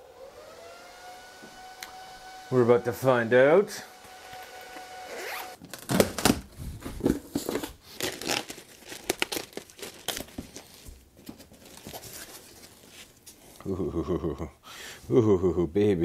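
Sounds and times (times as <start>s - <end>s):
plastic bag rustling: 5.6s - 13.6s.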